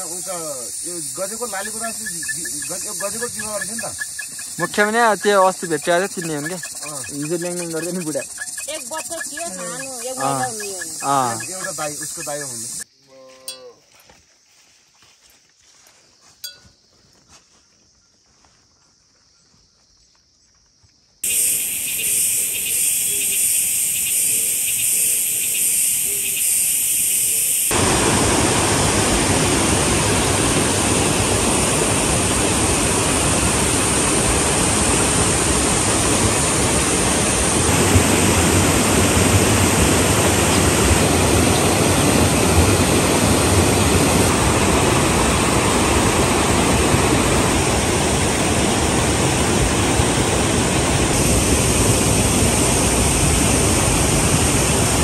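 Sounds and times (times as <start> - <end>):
flowing water rushing: 0.0 - 12.8, 27.7 - 55.0
insects chirring: 0.0 - 54.4.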